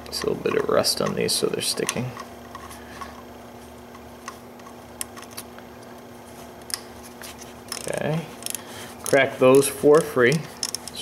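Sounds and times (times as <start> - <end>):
ratchet wrench clicking: 7.7 - 11.0.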